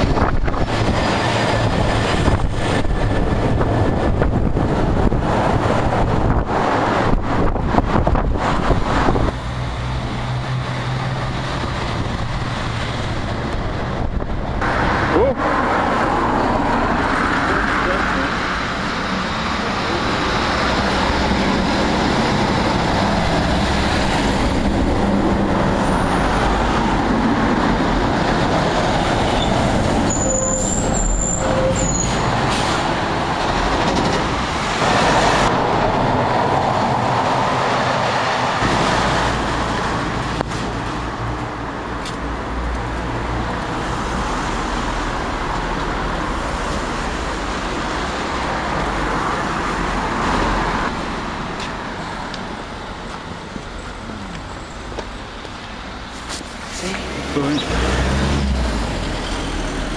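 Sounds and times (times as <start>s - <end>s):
cars passing: 0.0s - 59.9s
high squeal: 29.4s - 32.4s.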